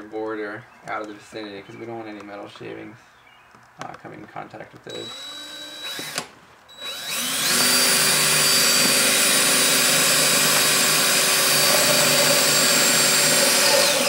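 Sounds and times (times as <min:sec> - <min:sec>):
drill drilling through metal: 0:04.9 - 0:14.0.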